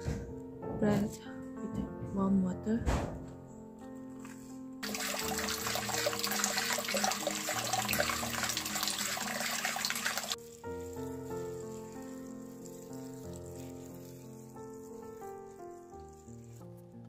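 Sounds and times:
background music: 0:00.0 - 0:17.0
tap water splashing into basin: 0:04.8 - 0:10.4.

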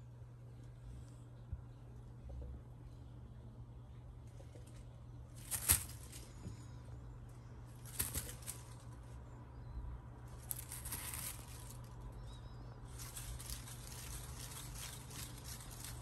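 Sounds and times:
low steady hum: 0:00.0 - 0:16.0
soft rustling: 0:04.3 - 0:09.2, 0:10.3 - 0:12.2, 0:12.8 - 0:16.0.

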